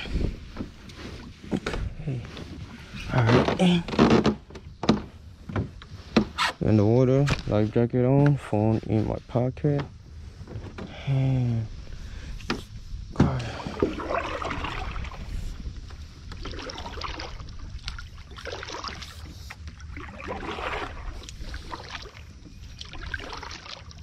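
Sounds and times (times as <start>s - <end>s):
paddle splashing in water: 13.1s - 24.0s.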